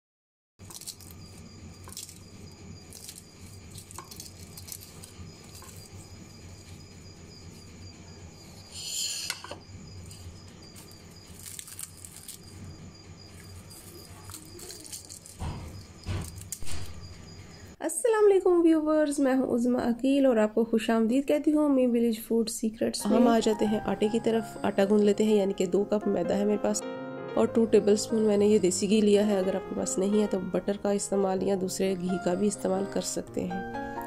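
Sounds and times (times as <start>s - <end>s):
crisp pastry crackling and breaking: 0.6s - 6.7s, 10.1s - 17.1s.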